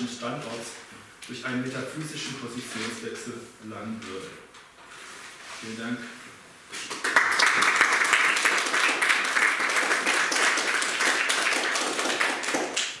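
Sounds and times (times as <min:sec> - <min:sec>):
audience applauding: 0:06.9 - 0:13.0.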